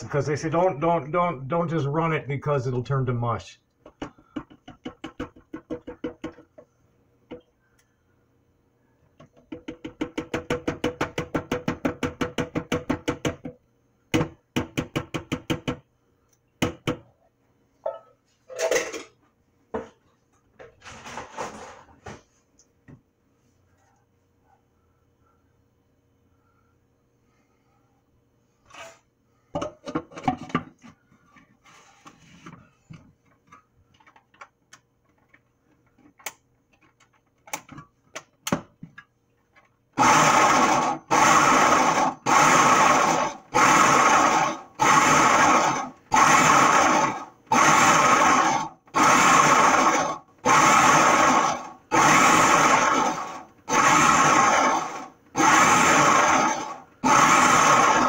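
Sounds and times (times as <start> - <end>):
clicks and knocks of handling: 32.5 - 39.8
food processor pulsing: 40.0 - 58.0.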